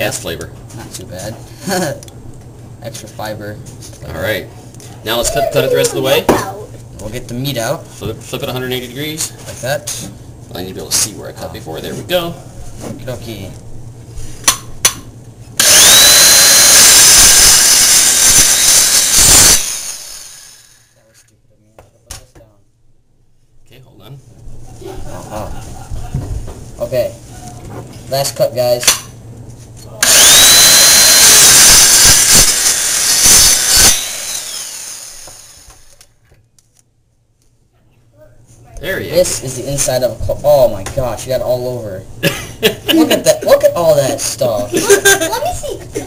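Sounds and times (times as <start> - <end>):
circular saw cutting shell: 15.6 - 21.0, 30.0 - 36.0.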